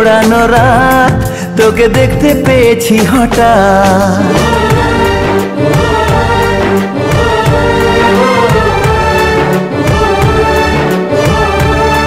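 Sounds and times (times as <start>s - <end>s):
steady beat: 0.1s - 12.0s
strings holding long notes: 4.2s - 12.0s.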